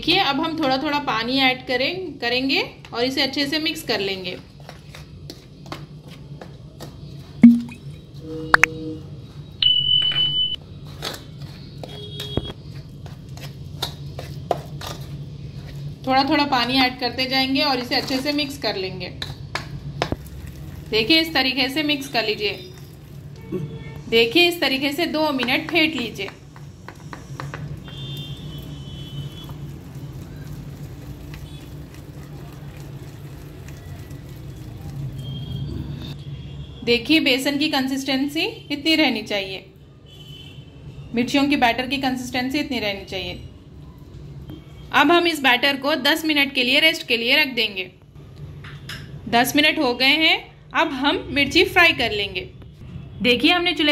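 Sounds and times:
high beep: 7.4 - 9.0, 9.6 - 10.6.

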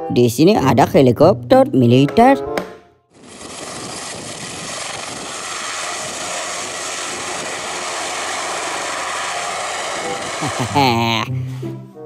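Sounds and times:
helicopter flying low: 3.1 - 11.3.

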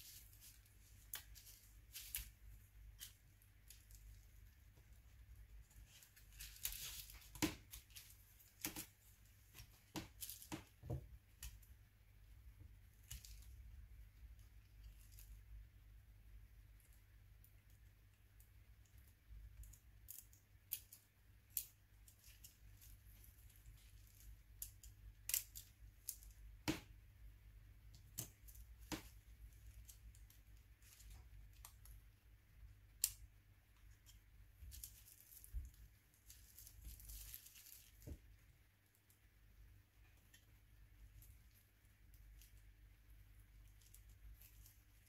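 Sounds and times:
bubble wrap crinkling: 0.0 - 11.7, 19.7 - 26.8, 28.0 - 32.0, 33.8 - 39.2, 40.2 - 45.0.

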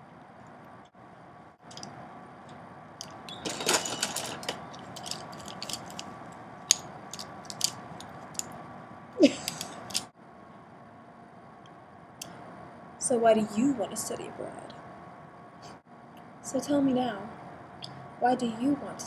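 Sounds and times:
wooden brush handles clattering: 3.0 - 6.1, 6.7 - 8.6, 9.5 - 10.1
short falling squeak: 3.3 - 4.1.

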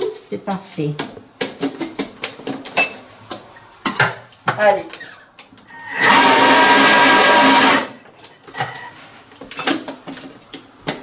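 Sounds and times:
food processor blade whining: 5.7 - 8.0.

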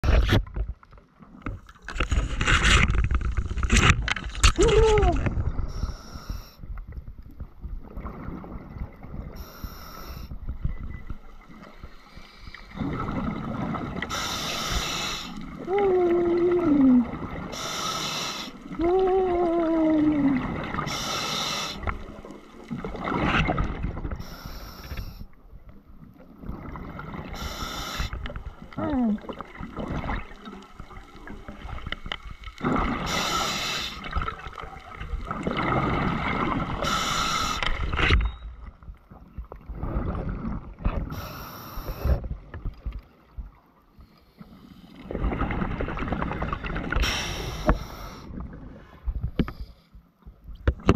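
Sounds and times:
exhaled bubbles rushing: 12.7 - 14.1, 22.0 - 24.2, 28.7 - 33.2, 34.0 - 37.0, 45.0 - 47.1
diver breathing through regulator: 14.1 - 15.4, 17.5 - 18.6, 20.8 - 21.9, 27.4 - 28.2, 33.0 - 34.2, 36.8 - 37.7, 47.0 - 48.3.

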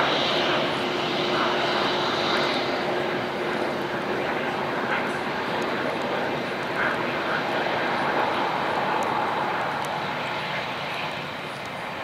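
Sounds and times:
jet engines whining: 0.0 - 12.0.

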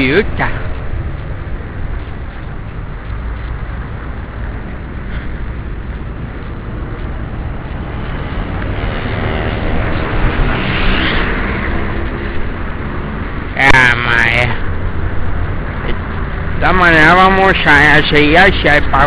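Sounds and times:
vehicle engine passing close: 0.0 - 13.6
wind rumbling on microphone: 0.0 - 13.6
street traffic noise: 0.0 - 19.0.

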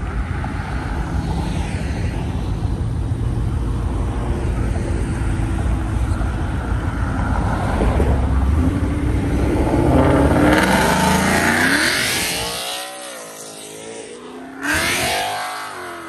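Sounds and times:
car engine revving past: 7.6 - 16.0.

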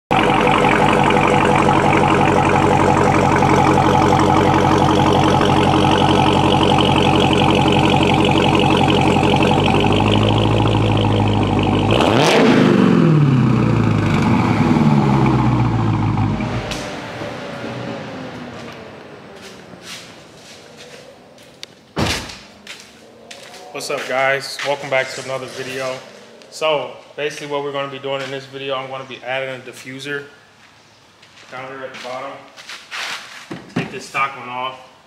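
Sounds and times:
car engine idling and revving: 0.1 - 24.1.

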